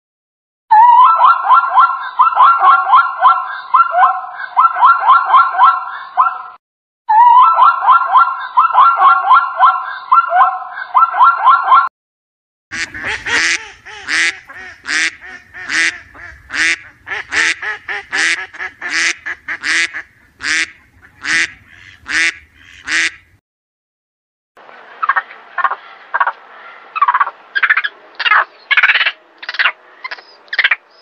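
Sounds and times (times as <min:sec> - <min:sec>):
zebra yelping and barking: 0:00.8 - 0:06.6, 0:07.2 - 0:11.9
ducks quacking: 0:12.7 - 0:23.4, 0:24.7 - 0:31.0.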